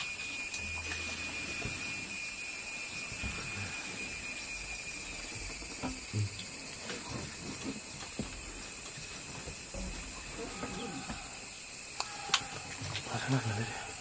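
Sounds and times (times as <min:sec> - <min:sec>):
forest insects droning: 0:00.0 - 0:14.0.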